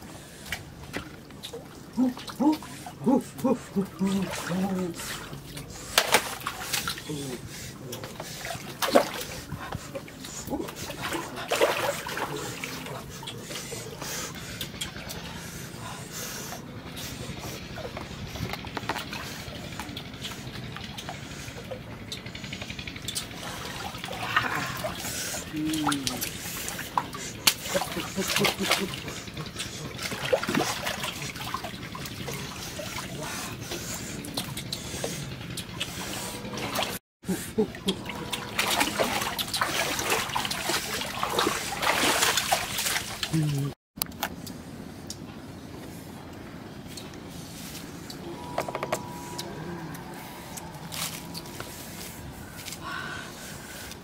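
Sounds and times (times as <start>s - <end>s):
stream water trickling and splashing: 22.1s - 37.0s, 37.8s - 43.7s
short voice sounds: 24.2s - 26.3s.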